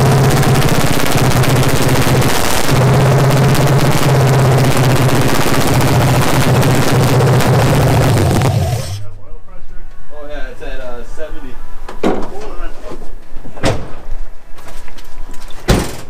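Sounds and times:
car engine running: 0:00.0 - 0:09.1.

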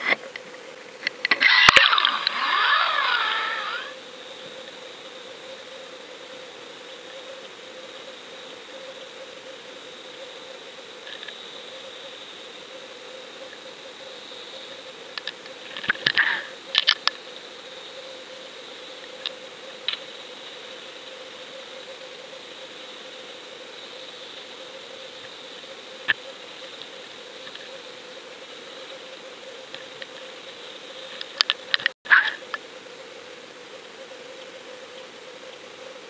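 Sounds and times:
underwater hum: 0:01.2 - 0:04.8.

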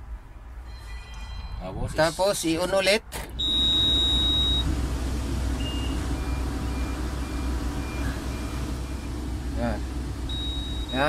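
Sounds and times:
long high beep: 0:03.4 - 0:04.7, 0:10.3 - 0:11.0
steady low hum: 0:03.4 - 0:11.0
short lower beeps: 0:10.3 - 0:11.0.

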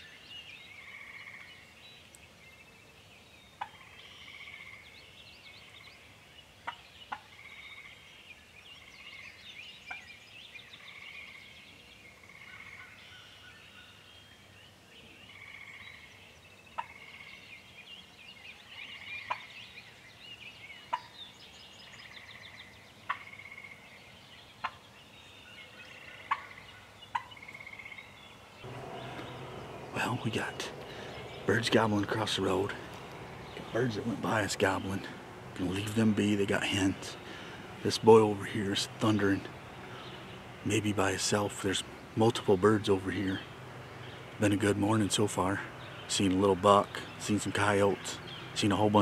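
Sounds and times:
songbirds chorus: 0:00.0 - 0:49.0
sharp bird call notes: 0:28.6 - 0:48.8
turkeys gobbling: 0:28.7 - 0:42.1.

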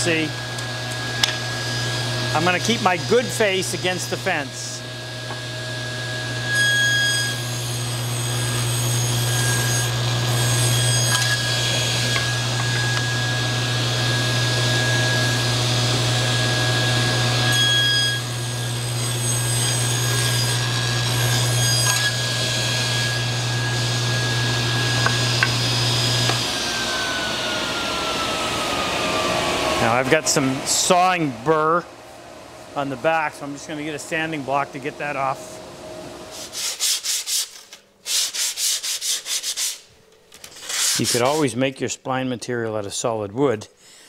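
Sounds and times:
table saw cutting wood: 0:00.0 - 0:31.6, 0:40.5 - 0:41.5
saw blade whine coasting down: 0:00.0 - 0:31.9.

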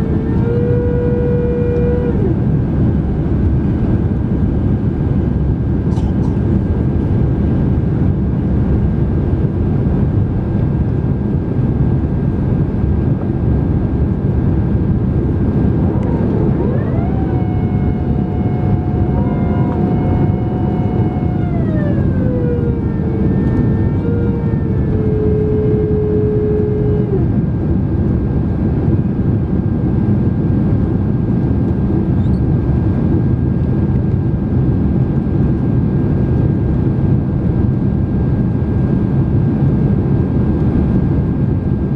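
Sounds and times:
gliding whine: 0:00.0 - 0:03.0, 0:13.2 - 0:29.2
airplane cabin engine roar: 0:00.0 - 0:41.9.

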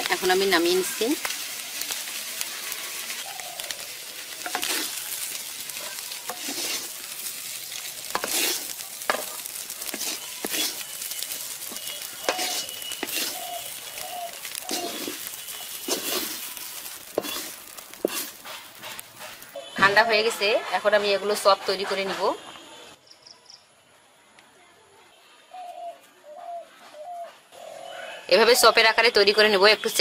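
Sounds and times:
steady hiss: 0:00.0 - 0:19.7
spatula scraping metal pan: 0:04.4 - 0:05.3, 0:06.0 - 0:07.0, 0:08.0 - 0:13.8, 0:14.5 - 0:19.5.

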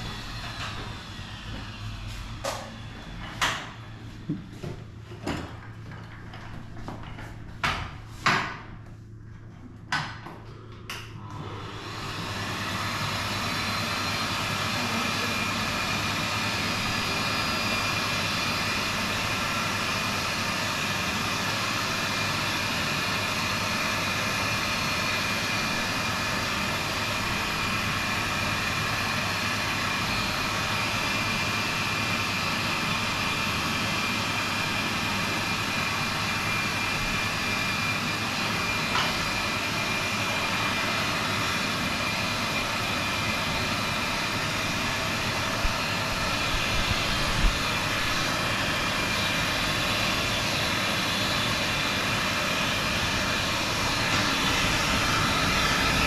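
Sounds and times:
blow dryer rushing air: 0:00.0 - 0:05.0, 0:11.2 - 0:56.0.

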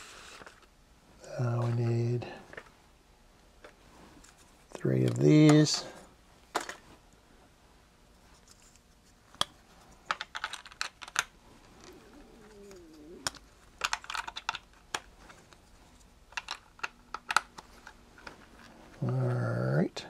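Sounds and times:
plastic bricks clicking: 0:10.1 - 0:15.1, 0:16.3 - 0:18.3.

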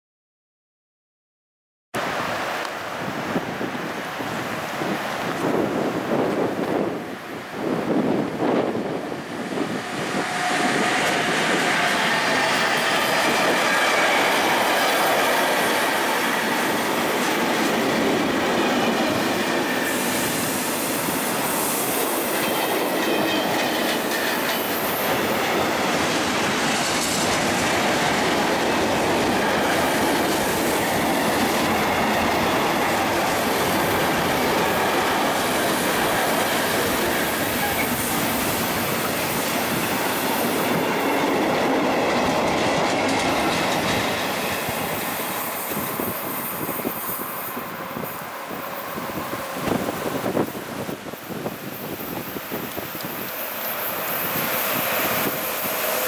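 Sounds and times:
freight train wheels clacking: 0:09.4 - 0:56.0
high wheel squeal: 0:36.2 - 0:40.8.

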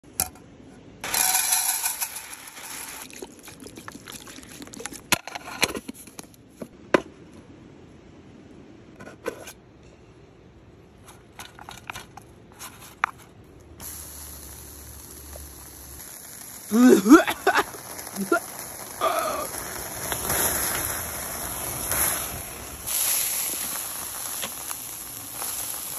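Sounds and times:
meat sizzling on a grill: 0:01.0 - 0:03.8, 0:13.8 - 0:25.9.

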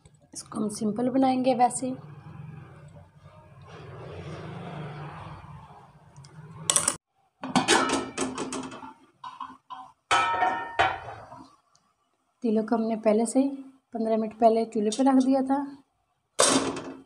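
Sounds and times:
metal-on-metal knocks: 0:06.7 - 0:11.3
metal pot clanking and ringing: 0:07.5 - 0:11.4.

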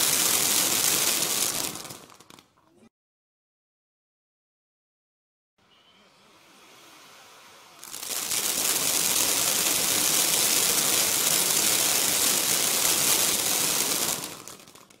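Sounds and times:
firework hissing and crackling: 0:00.0 - 0:02.5, 0:06.2 - 0:15.0.

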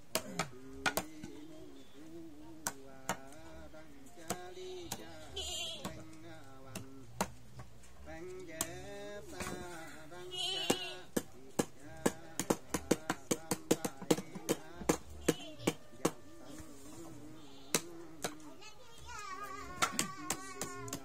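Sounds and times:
man chanting: 0:00.2 - 0:07.3, 0:08.0 - 0:21.0.

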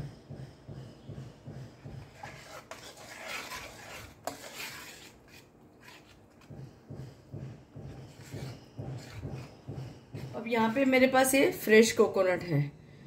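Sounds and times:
spoon scraping metal bowl: 0:02.0 - 0:06.5, 0:07.9 - 0:10.3.

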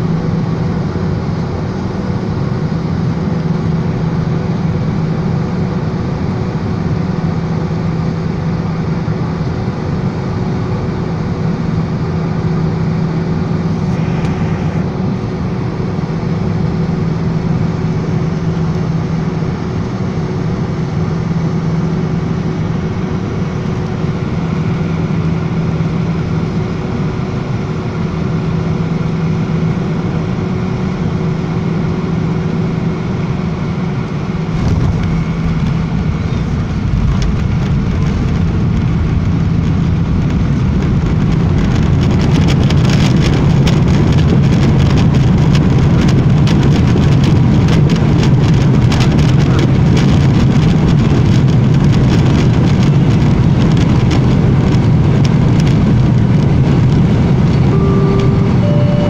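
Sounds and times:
jet engine drone: 0:00.0 - 0:59.0
runway rumble: 0:09.1 - 0:28.1, 0:32.3 - 0:59.0.

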